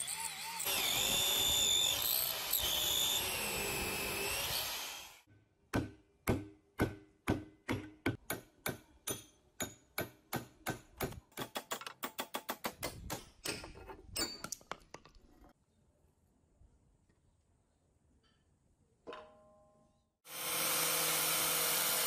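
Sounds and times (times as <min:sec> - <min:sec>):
hammer striking steel rod: 0:05.7 - 0:14.4.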